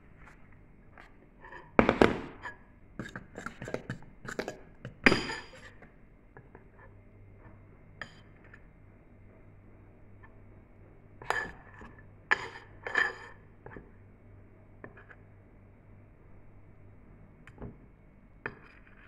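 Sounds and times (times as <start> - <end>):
glass bowl clinking and knocking: 5.0 - 5.6.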